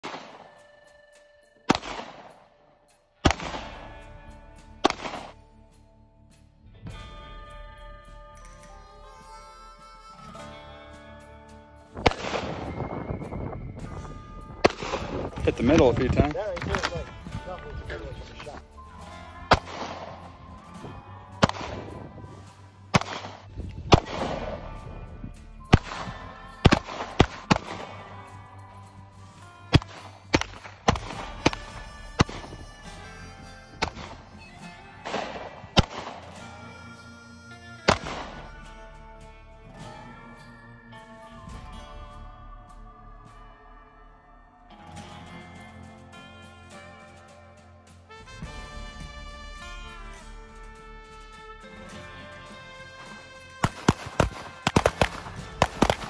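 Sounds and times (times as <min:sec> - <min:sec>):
pistol shots with echo: 0:00.0 - 0:00.8, 0:01.7 - 0:02.5, 0:03.2 - 0:04.2, 0:04.8 - 0:05.4, 0:12.0 - 0:12.8, 0:14.6 - 0:17.0, 0:19.5 - 0:20.1, 0:21.3 - 0:22.0, 0:23.0 - 0:24.9, 0:25.7 - 0:28.3, 0:29.7 - 0:32.6, 0:35.0 - 0:36.7, 0:37.8 - 0:38.5, 0:53.6 - 0:56.0
background music: 0:00.0 - 0:56.0.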